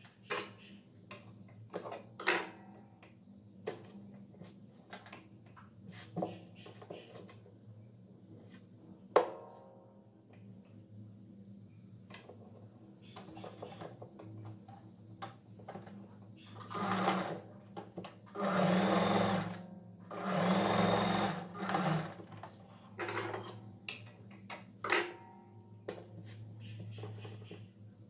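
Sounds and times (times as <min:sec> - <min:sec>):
sewing machine stitching: 0:16.6 - 0:17.4, 0:18.3 - 0:22.4.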